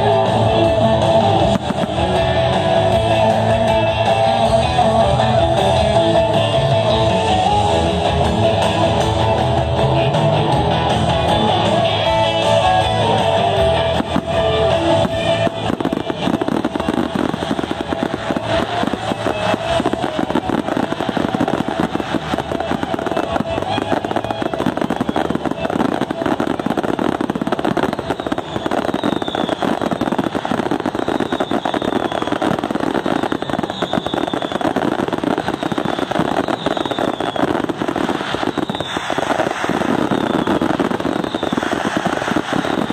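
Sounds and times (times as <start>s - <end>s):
guitar music: 0.0s - 28.7s
fireworks banging and crackling: 0.0s - 42.9s.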